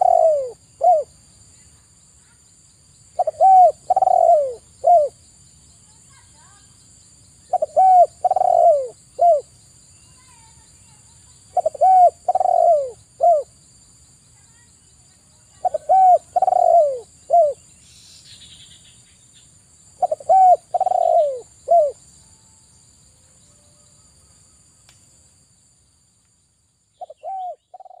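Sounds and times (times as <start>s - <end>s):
dove cooing: 0.0s - 1.1s, 3.2s - 5.2s, 7.5s - 9.5s, 11.5s - 13.5s, 15.6s - 17.6s, 20.0s - 22.0s, 27.0s - 28.0s.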